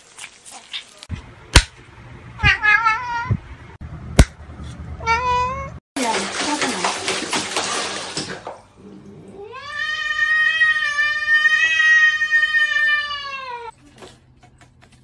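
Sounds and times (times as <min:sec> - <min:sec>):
cat yowling: 0:02.4 - 0:03.4, 0:05.0 - 0:05.8, 0:09.4 - 0:13.7.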